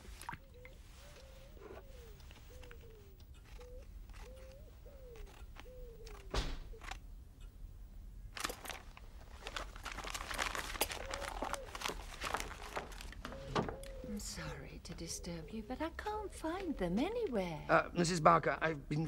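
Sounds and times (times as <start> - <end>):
pigeon cooing: 0.3 - 6.9, 10.8 - 17.2
scissors snipping paper: 2.6 - 7.0
paper rustling and crinkling: 8.3 - 14.0.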